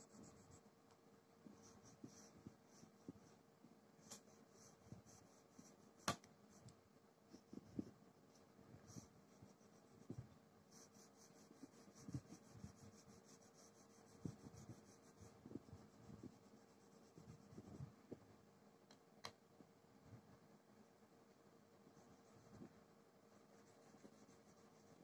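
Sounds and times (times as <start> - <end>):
colouring strokes on paper: 0.0 - 0.7, 1.4 - 3.4, 4.0 - 6.7, 7.3 - 18.2, 21.8 - 25.0.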